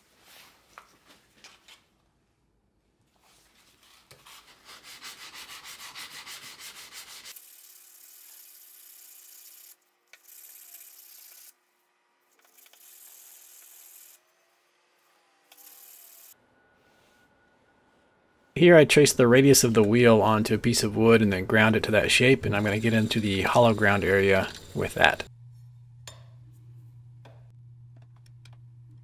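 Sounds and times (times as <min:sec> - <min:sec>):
knife rubbing on abrasive paper: 0:03.5 - 0:11.5.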